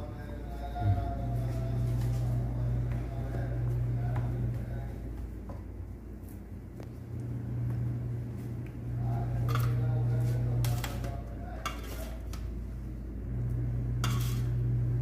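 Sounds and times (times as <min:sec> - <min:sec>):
steady low hum: 0:00.0 - 0:15.0
spoon scraping a steel plate: 0:09.4 - 0:10.0, 0:10.6 - 0:12.5, 0:14.0 - 0:14.6.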